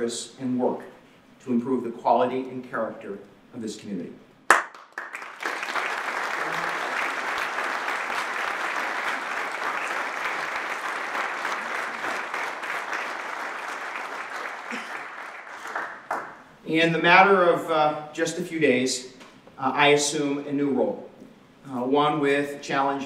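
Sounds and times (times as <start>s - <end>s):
audience applauding: 4.5s - 16.5s.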